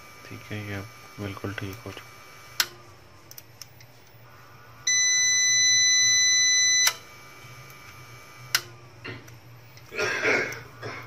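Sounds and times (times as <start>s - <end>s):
high buzzer beep: 4.8s - 7.0s.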